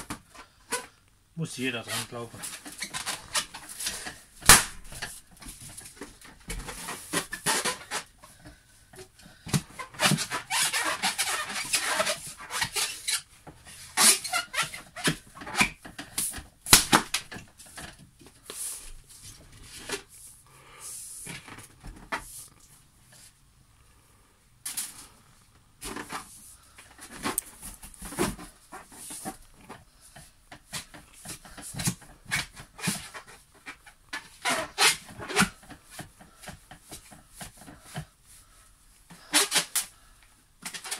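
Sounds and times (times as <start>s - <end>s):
balloons squeaking and crackling: 0.0s - 20.1s, 25.8s - 38.5s, 39.1s - 40.9s
balloon bursting with a bang: 4.4s - 5.0s, 16.7s - 17.2s.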